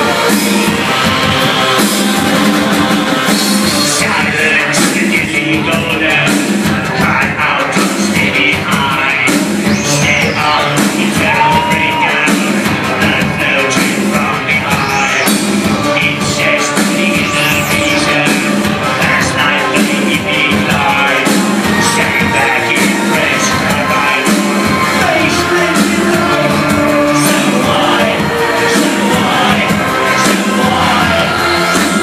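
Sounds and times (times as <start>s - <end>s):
electronic music with steady beat: 0.0s - 32.0s
high sweeping tones: 9.1s - 32.0s.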